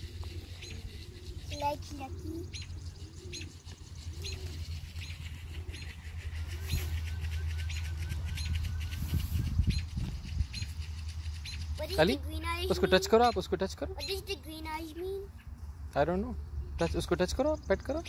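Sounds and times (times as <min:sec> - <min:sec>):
steady low rumble: 0:00.0 - 0:12.7
bird trill of rising notes: 0:00.0 - 0:13.4
small birds chirping: 0:00.0 - 0:18.0.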